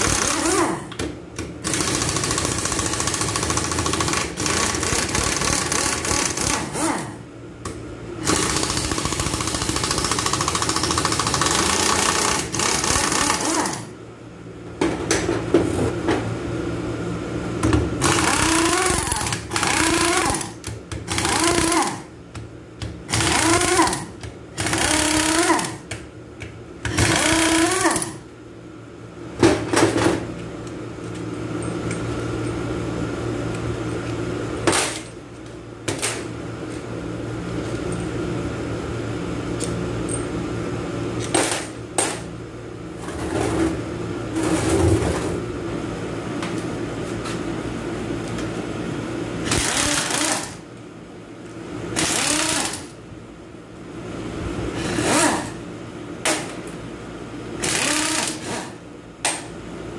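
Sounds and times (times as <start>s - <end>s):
pneumatic impact wrench rattling: 0.0s - 0.9s, 1.6s - 7.1s, 8.2s - 13.9s, 18.0s - 22.1s, 23.1s - 25.9s, 26.9s - 28.2s, 49.4s - 50.6s, 52.0s - 53.0s, 54.8s - 55.6s, 57.6s - 58.8s
steady machine hum: 0.0s - 59.9s.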